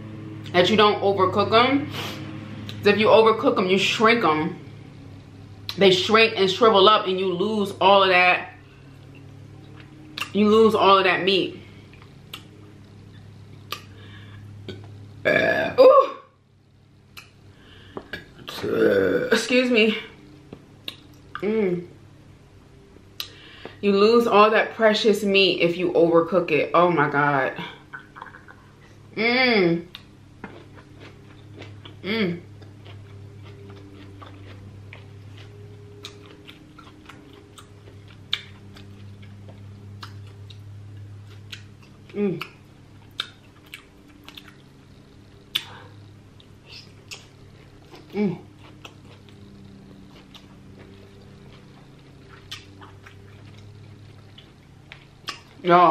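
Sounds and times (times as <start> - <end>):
low hum: 0.0 - 55.9
woman burping: 15.2 - 16.2, 18.5 - 19.4
wet mouth clicks: 20.8 - 21.4, 42.4 - 44.6, 45.5 - 45.8, 52.3 - 53.1
close chewing: 29.9 - 55.6.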